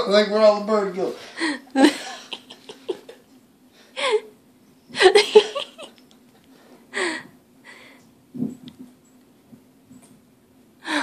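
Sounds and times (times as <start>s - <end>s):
person giggling: 1.4s - 3.2s, 5.0s - 6.0s.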